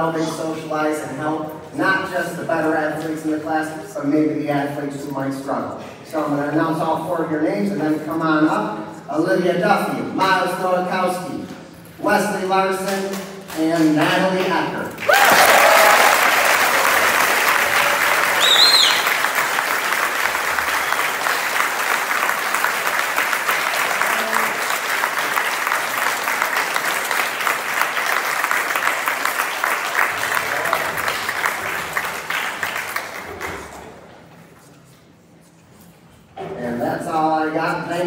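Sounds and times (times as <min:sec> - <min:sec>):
audience applauding: 0:15.0 - 0:33.9
short high-pitched call: 0:18.4 - 0:19.1.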